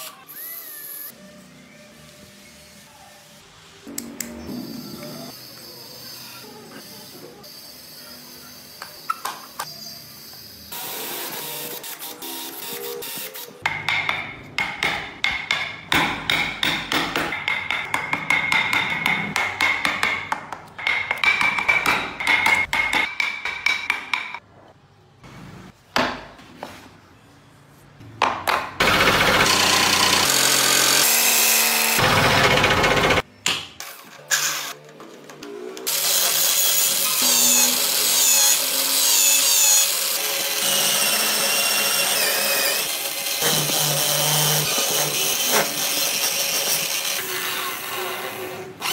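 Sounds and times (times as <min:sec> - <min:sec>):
drill motors running: 0:28.8 - 0:33.2
loud power tool running: 0:28.8 - 0:33.2
wood chisel cutting: 0:28.8 - 0:33.2, 0:35.9 - 0:48.9.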